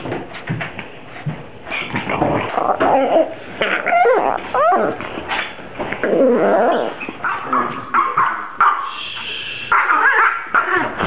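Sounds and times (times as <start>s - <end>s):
small dog whining: 2.6s - 5.0s, 6.0s - 7.7s.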